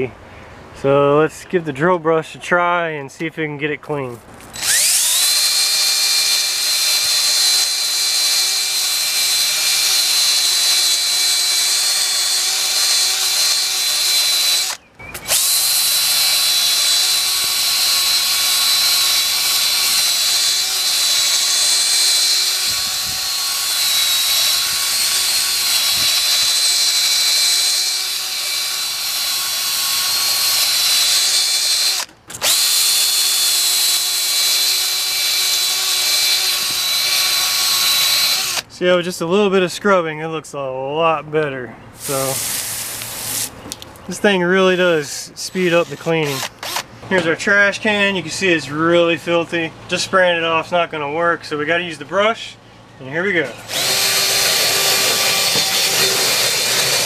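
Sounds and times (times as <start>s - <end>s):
drill brush against clay pot: 4.6s - 38.6s, 42.0s - 43.6s, 53.4s - 57.0s
cordless drill motor whine: 4.6s - 38.7s, 45.8s - 46.9s, 53.6s - 57.0s.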